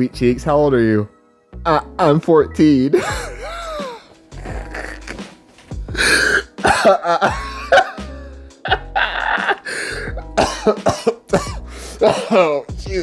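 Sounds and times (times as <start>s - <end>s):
background music with deep bass: 0.0s - 13.0s
person coughing and clearing throat: 3.0s - 12.7s.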